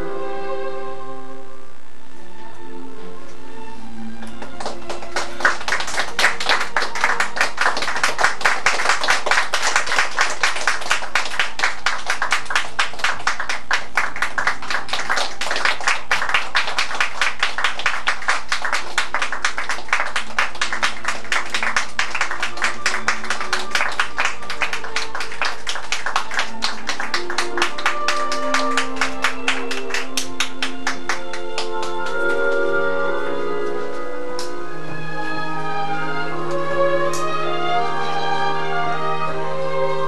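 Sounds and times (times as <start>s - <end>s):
audience applauding: 4.2s - 34.5s.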